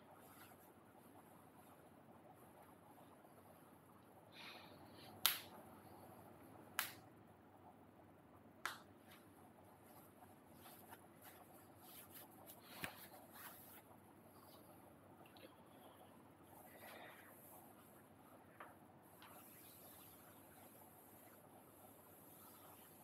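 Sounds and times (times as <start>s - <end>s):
soft rustling: 0.1s - 3.0s, 9.0s - 23.0s.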